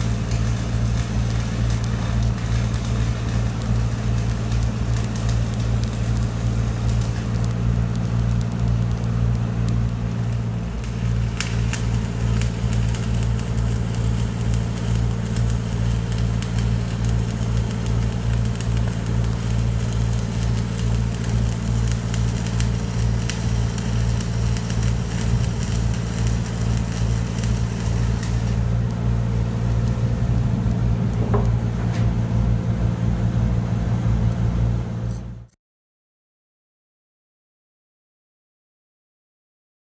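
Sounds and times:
welding arc crackling: 0.0s - 31.8s
welding machine engine drone: 0.0s - 35.6s.

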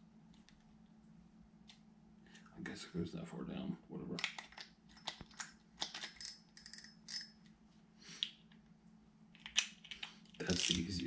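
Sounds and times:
fishing reel spool clicks and clinks: 6.0s - 7.4s.

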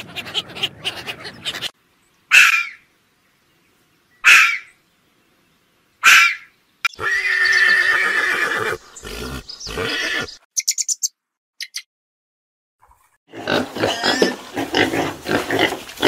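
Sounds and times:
horse neighing: 6.9s - 10.4s.

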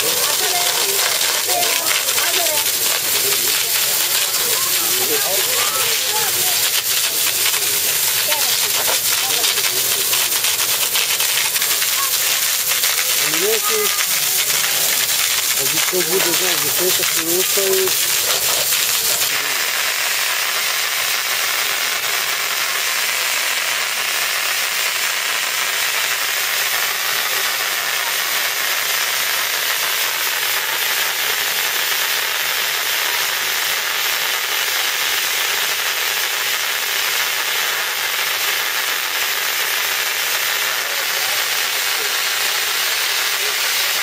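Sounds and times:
hose water jet hissing: 0.0s - 44.0s.

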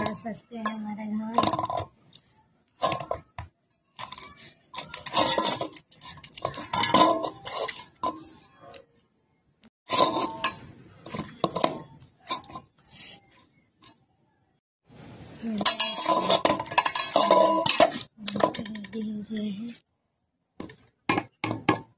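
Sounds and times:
bangles clinking on steel bowl: 15.6s - 19.6s.

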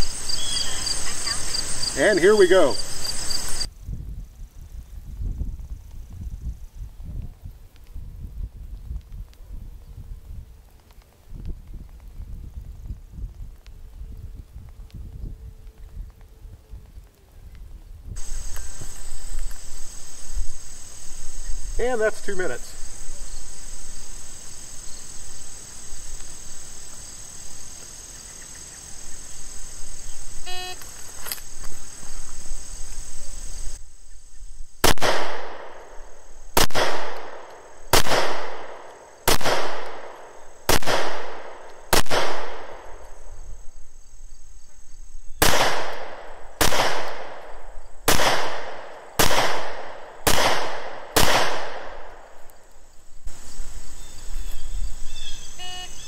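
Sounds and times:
pistol shots: 34.8s - 36.0s, 36.6s - 43.0s, 45.4s - 47.5s, 48.1s - 52.2s.

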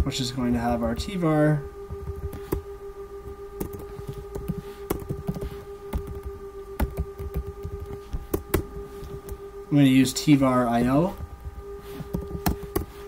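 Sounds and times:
faint hum: 0.0s - 13.0s
keyboard keys clicking: 3.6s - 8.7s, 10.8s - 12.9s.

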